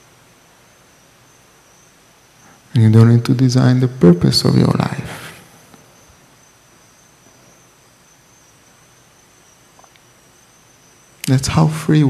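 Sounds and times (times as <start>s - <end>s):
cricket trill: 0.0s - 12.0s
room hiss: 0.0s - 12.0s.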